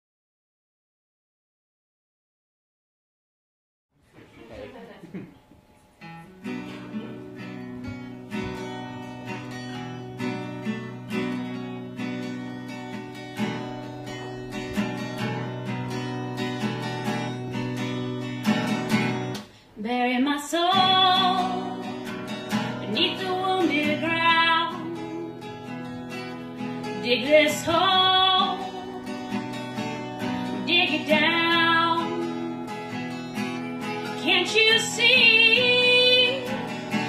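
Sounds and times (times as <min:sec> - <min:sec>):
acoustic guitar playing: 0:05.4 - 0:37.0
woman singing: 0:19.8 - 0:22.0, 0:22.8 - 0:25.5, 0:26.9 - 0:29.4, 0:30.2 - 0:32.7, 0:34.1 - 0:37.0.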